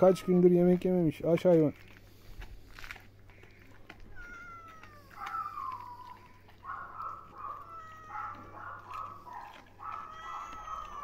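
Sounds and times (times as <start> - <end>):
cat meowing: 0.0 - 0.7, 4.0 - 9.2, 9.8 - 11.0.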